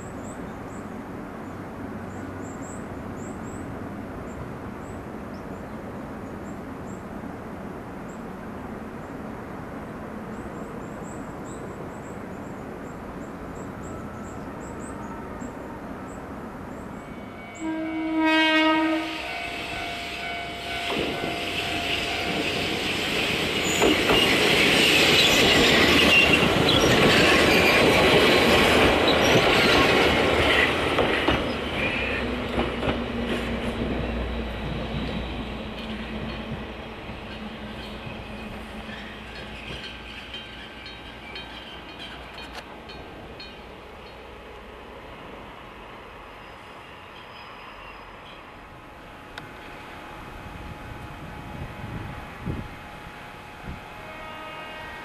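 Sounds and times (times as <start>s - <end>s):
electric train horn: 17.0s - 23.0s, 53.6s - 55.0s
train wheels clattering and squealing: 19.2s - 44.3s, 46.4s - 48.6s.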